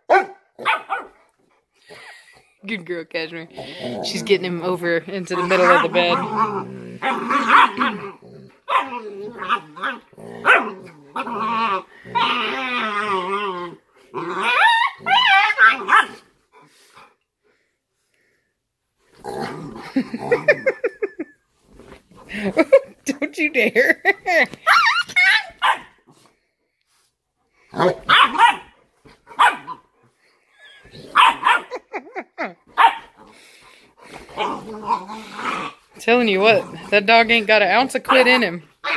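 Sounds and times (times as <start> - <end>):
puppy barking: 0.0 - 1.2, 8.7 - 9.6, 10.4 - 10.7, 15.0 - 16.2, 24.7 - 26.0, 27.8 - 29.8, 31.1 - 31.9, 32.7 - 33.2
dogs wrestling and vocalizing: 0.0 - 38.9
puppy yelping: 14.3 - 16.2, 24.6 - 26.0, 28.0 - 29.8, 30.5 - 31.8.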